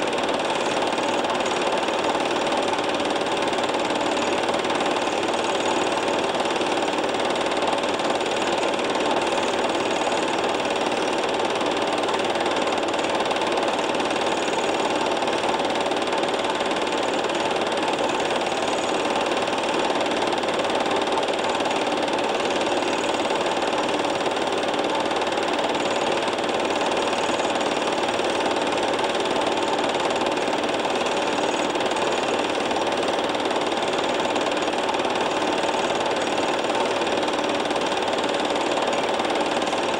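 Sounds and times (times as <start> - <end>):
film projector clatter: 0.0 - 39.9.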